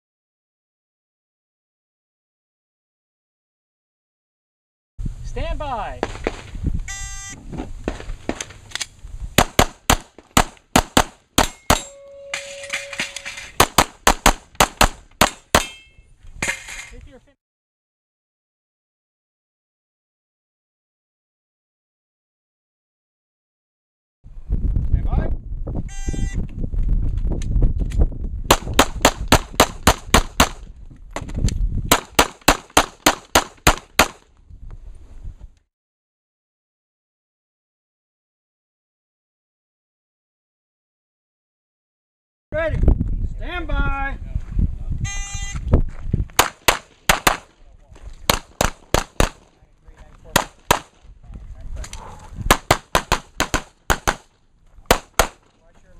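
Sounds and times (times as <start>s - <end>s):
rapid handgun shots: 9.4s - 11.9s, 13.6s - 15.7s, 28.5s - 30.6s, 31.9s - 34.2s, 46.4s - 47.5s, 48.3s - 49.5s, 50.3s - 51.0s, 52.5s - 54.3s, 54.9s - 55.5s.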